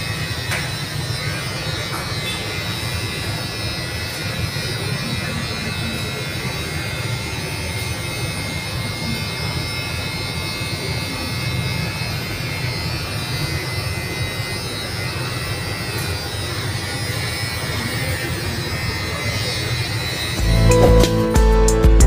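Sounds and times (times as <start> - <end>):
electric hair clippers buzzing: 0.0 - 22.0
music playing: 20.4 - 22.0.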